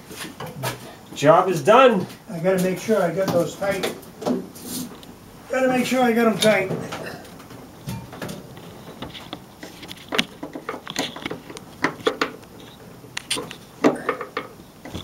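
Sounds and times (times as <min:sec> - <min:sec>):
screwdriver clicks and scrapes on metal: 0:08.2 - 0:13.6.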